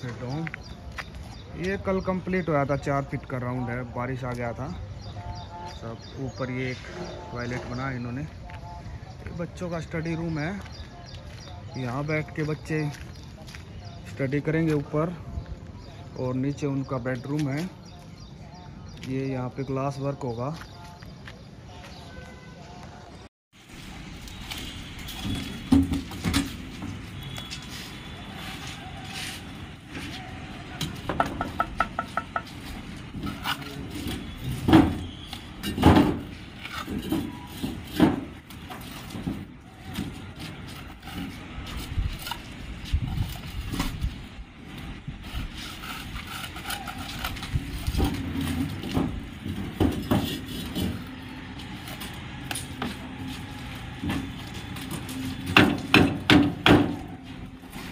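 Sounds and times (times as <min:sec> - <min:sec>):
steady background noise: 0:00.0 - 0:57.9
knocks and bangs: 0:30.8 - 0:33.3, 0:54.0 - 0:57.2.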